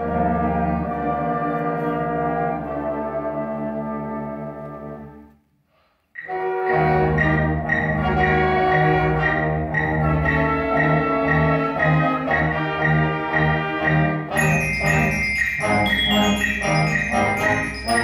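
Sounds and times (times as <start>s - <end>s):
school band playing: 0.0s - 5.2s, 6.2s - 18.0s
low instruments rhythmic pulse: 6.2s - 18.0s.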